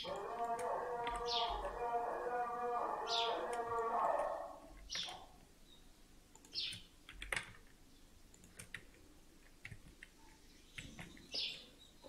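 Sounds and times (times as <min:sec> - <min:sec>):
keyboard and mouse clicks: 0:00.0 - 0:01.8, 0:03.5 - 0:05.4, 0:06.3 - 0:11.4.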